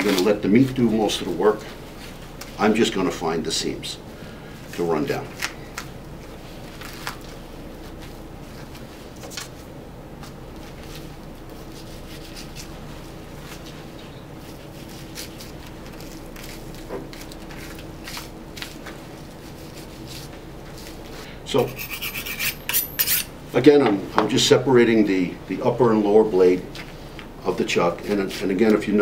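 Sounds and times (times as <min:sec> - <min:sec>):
faint hum: 0:00.0 - 0:29.0
knife cutting meat: 0:21.6 - 0:23.3.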